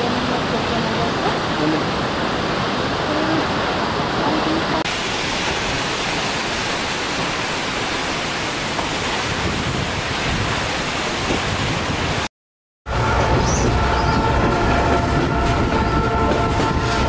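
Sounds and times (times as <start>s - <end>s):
waterfall rushing: 0.0s - 12.3s.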